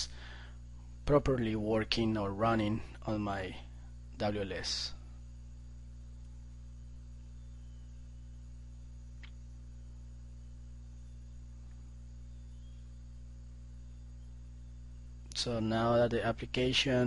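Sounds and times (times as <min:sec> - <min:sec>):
low electrical hum: 0:00.0 - 0:17.0
faint click: 0:09.1 - 0:09.5.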